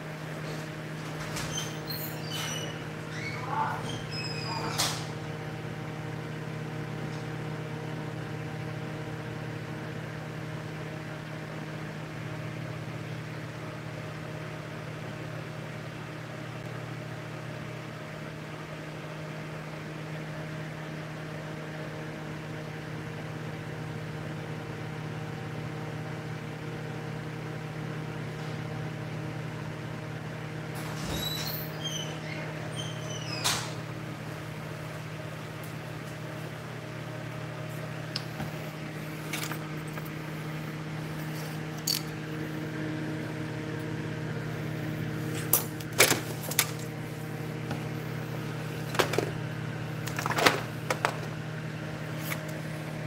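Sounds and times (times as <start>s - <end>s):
steady mechanical hum: 0.0s - 53.0s
short squeaks: 1.2s - 5.1s, 30.9s - 33.8s.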